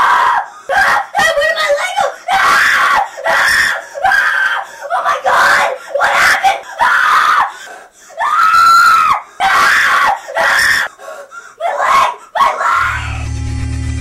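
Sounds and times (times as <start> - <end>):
child screaming: 0.0 - 7.5, 8.2 - 10.9, 11.6 - 13.2
low droning music tone: 12.9 - 14.0.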